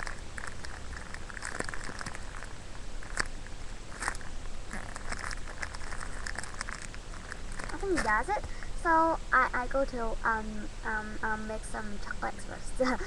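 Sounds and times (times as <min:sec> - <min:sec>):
foam squishy crackling: 0:00.0 - 0:08.7.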